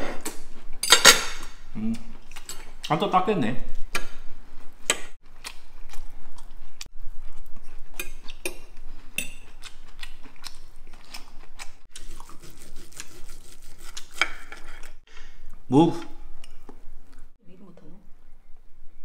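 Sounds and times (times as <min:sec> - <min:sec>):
cutlery scraping on plate: 0:00.8 - 0:01.5.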